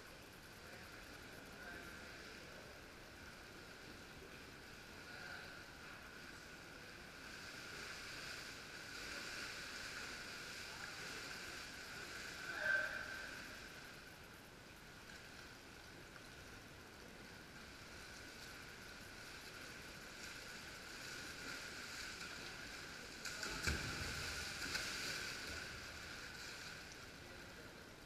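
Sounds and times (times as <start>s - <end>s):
steady hum: 0.0s - 28.0s
water splashing and sloshing: 14.8s - 28.0s.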